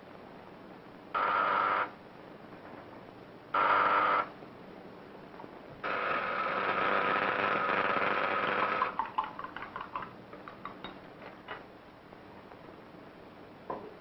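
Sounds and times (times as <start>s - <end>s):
mechanical buzz: 1.1s - 2.0s, 3.5s - 4.4s, 5.8s - 9.0s
glassware clinking: 8.8s - 11.0s.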